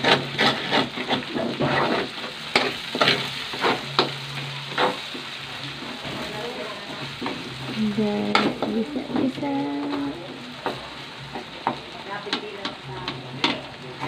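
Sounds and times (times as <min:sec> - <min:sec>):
spatula scraping and tapping pan: 0:00.0 - 0:06.2, 0:07.1 - 0:14.0
food sizzling in hot oil: 0:00.0 - 0:14.0.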